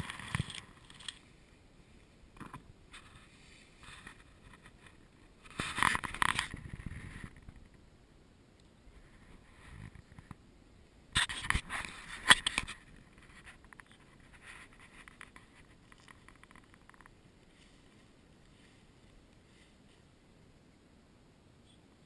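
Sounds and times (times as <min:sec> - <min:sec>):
close rustling and scraping: 0:00.0 - 0:01.5, 0:02.3 - 0:07.8, 0:08.9 - 0:10.4, 0:11.2 - 0:20.2
faint crackling: 0:11.1 - 0:20.8.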